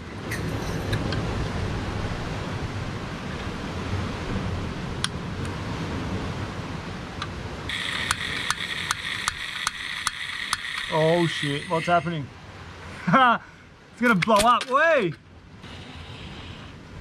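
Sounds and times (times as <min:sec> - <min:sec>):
sea surf: 0:00.0 - 0:17.0
wind: 0:00.0 - 0:17.0
gas hissing from burner: 0:07.7 - 0:11.7.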